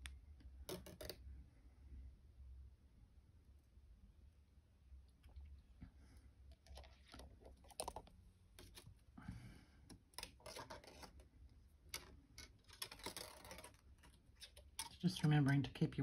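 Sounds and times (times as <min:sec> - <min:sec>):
wire clicking and rubbing: 0:09.9 - 0:15.1.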